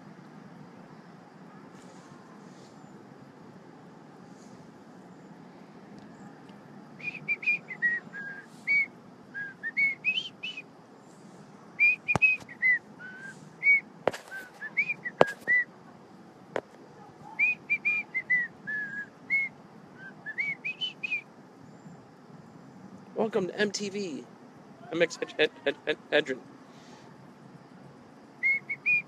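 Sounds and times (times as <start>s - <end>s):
man whistling a tune: 7.0s - 10.6s, 11.8s - 15.7s, 17.4s - 21.2s, 28.4s - 29.0s.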